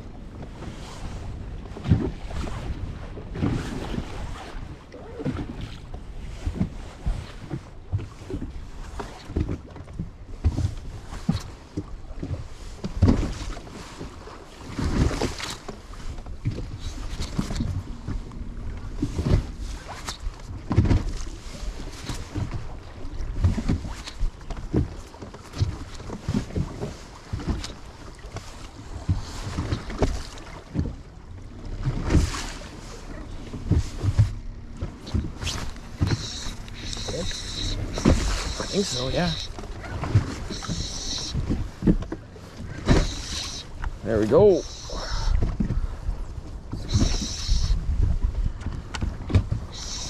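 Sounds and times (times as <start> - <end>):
waves slapping boat hull: 0.0 - 50.0
wind buffeting microphone: 28.8 - 50.0.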